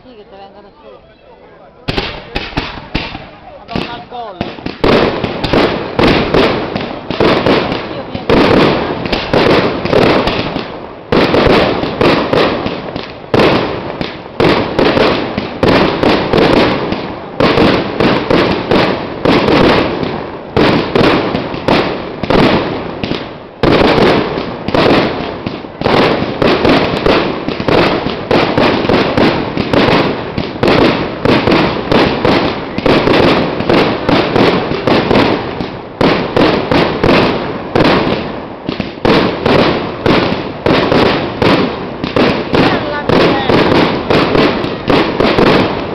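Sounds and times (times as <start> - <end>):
fireworks bursting and crackling: 0.0 - 45.9.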